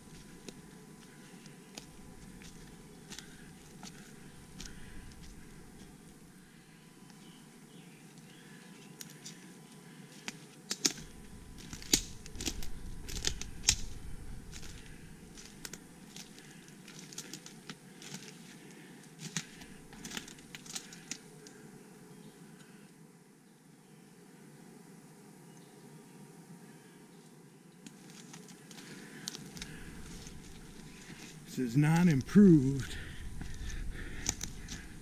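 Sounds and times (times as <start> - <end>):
footsteps crunching dry leaves: 0.0 - 6.2, 10.8 - 21.2, 28.0 - 35.0.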